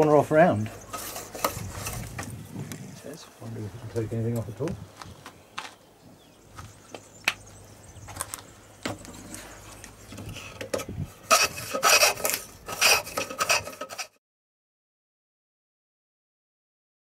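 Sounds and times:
plane shaving strokes: 0.8 - 2.1, 11.2 - 14.2.

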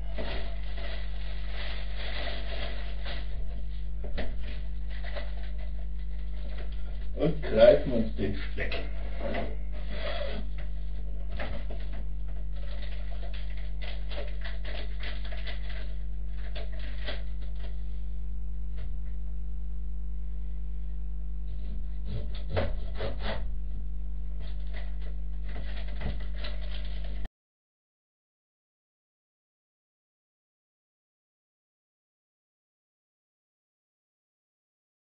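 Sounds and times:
low electrical hum: 0.0 - 27.3
scraping on wooden cutting board: 8.8 - 11.9, 21.5 - 23.5.

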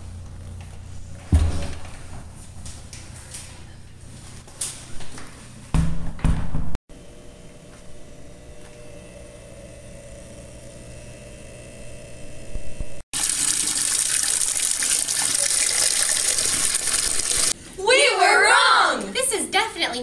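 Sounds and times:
water rushing: 13.2 - 17.6.

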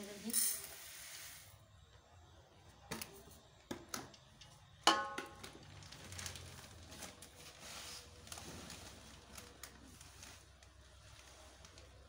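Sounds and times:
bowl knocking on metal pot: 4.9 - 5.4.

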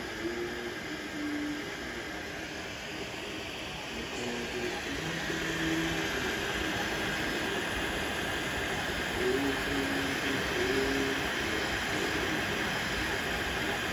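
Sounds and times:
cooling fans whirring: 0.0 - 13.9
stepper motors singing: 3.9 - 13.9.

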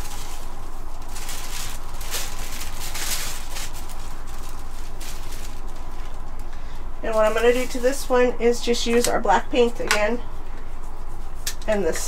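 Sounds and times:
tissue paper rustling: 0.0 - 6.5, 7.1 - 8.2
steady low hum: 0.0 - 12.0.

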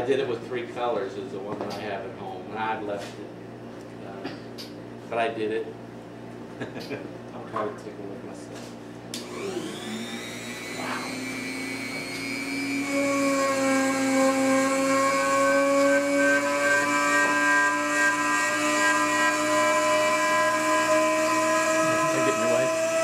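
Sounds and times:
rotary tool whining cutting wood: 9.2 - 23.0.

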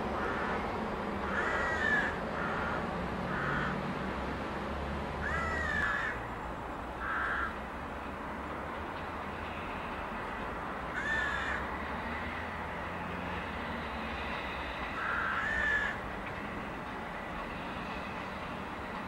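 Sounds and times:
crow cawing: 0.2 - 0.6, 1.2 - 3.8, 5.2 - 6.2, 7.0 - 7.6, 10.9 - 11.7, 15.0 - 16.0.

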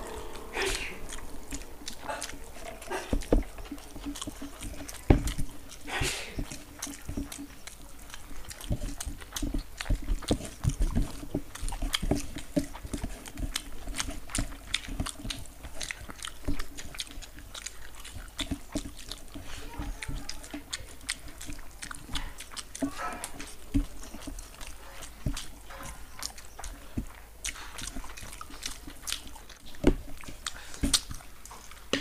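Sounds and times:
fingers working rice on plates: 0.0 - 32.0
wet chewing and mouth noises: 0.0 - 32.0.

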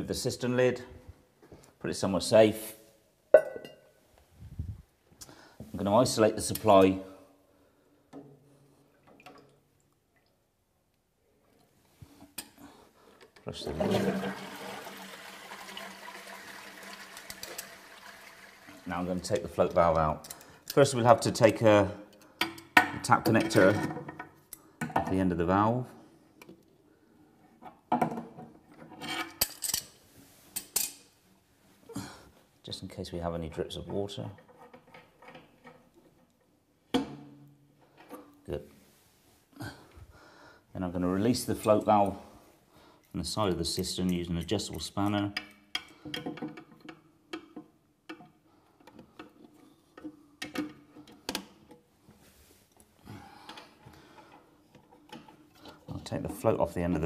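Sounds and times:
metal tools clinking on pipe fittings: 43.6 - 46.4.

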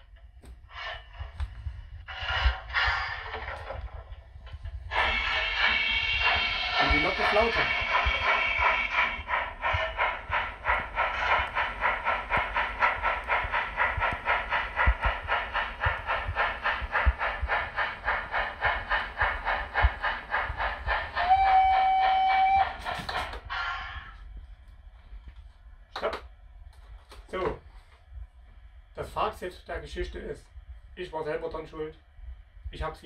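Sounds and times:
steam locomotive chuffing: 0.0 - 25.4
steam hiss: 0.7 - 24.2
train whistle blast: 21.2 - 22.8.

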